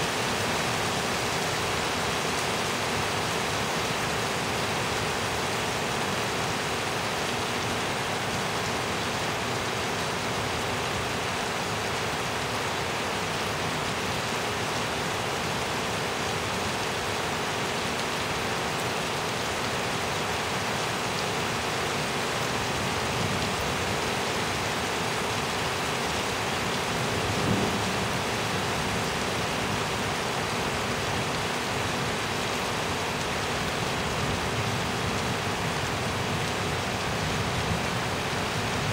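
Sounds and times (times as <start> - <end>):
steady rain falling: 0.0 - 38.9
low rumble of thunder: 27.0 - 29.3.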